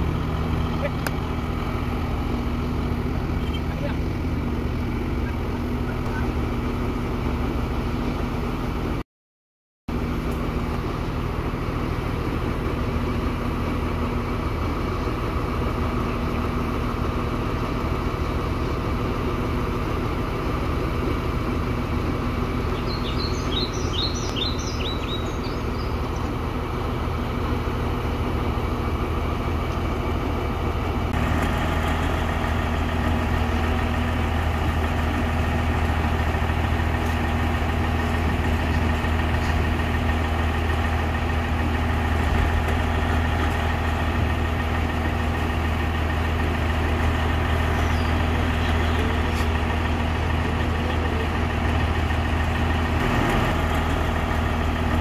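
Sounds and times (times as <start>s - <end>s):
diesel engines idling: 0.0s - 9.0s, 9.9s - 55.0s.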